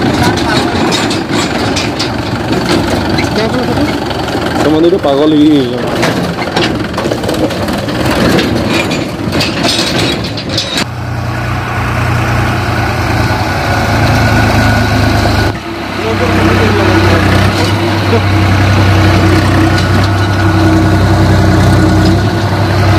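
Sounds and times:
knocks and rattles: 0:00.0 - 0:10.9, 0:16.5 - 0:22.9
tractor diesel engines running: 0:00.0 - 0:22.9.

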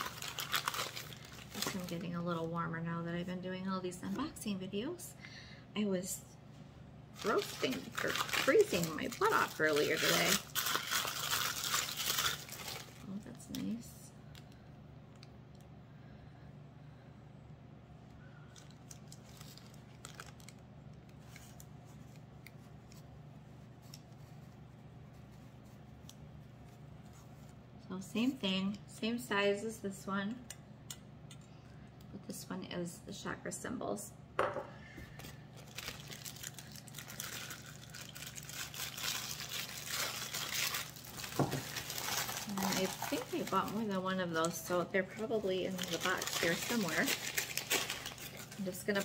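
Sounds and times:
packing paper rustling and crinkling: 0:00.0 - 0:03.0, 0:07.2 - 0:14.5, 0:18.5 - 0:27.6, 0:35.1 - 0:49.0
steady low hum: 0:00.0 - 0:49.0.

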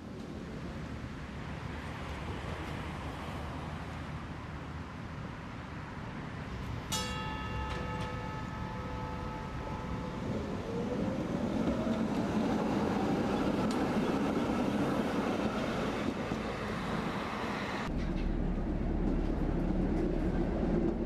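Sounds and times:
wheels rumbling on rail: 0:00.0 - 0:21.0
tram running noise inside cab: 0:06.0 - 0:21.0
tram motor whine: 0:06.5 - 0:21.0.

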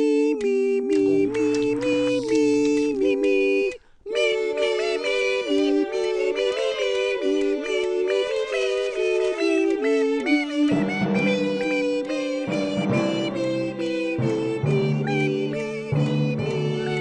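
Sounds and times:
synthetic high melody: 0:09.0 - 0:17.0.

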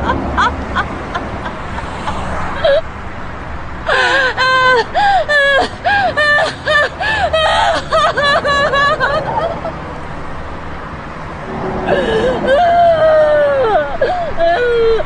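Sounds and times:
woman sobbing and wailing: 0:00.0 - 0:02.8, 0:03.9 - 0:09.8, 0:11.6 - 0:15.0
traffic hum: 0:00.0 - 0:15.0.

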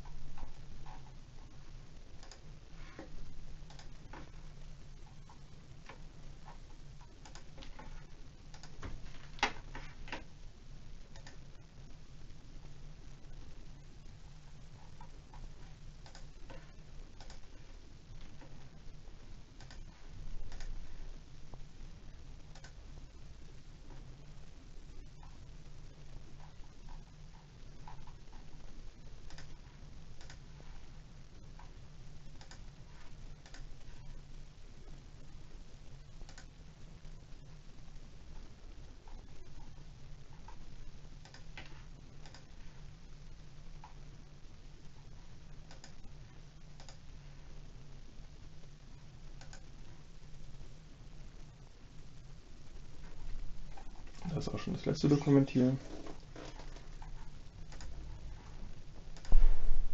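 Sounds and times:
computer mouse clicking: 0:00.0 - 0:01.2, 0:02.2 - 0:04.3, 0:05.0 - 0:10.3, 0:11.1 - 0:11.4, 0:14.8 - 0:17.6, 0:19.6 - 0:20.8, 0:22.5 - 0:22.8, 0:26.4 - 0:28.6, 0:29.2 - 0:30.5, 0:32.4 - 0:32.7, 0:33.4 - 0:34.2, 0:36.2 - 0:36.5, 0:41.2 - 0:42.6, 0:45.6 - 0:46.1, 0:46.8 - 0:47.1, 0:49.4 - 0:49.7, 0:55.8 - 0:58.1, 0:59.1 - 0:59.4
low steady hum: 0:00.0 - 0:59.9.

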